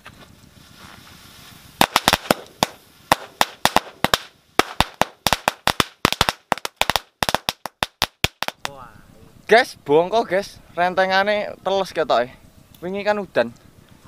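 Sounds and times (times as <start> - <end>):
firecrackers cracking: 0.2 - 8.8.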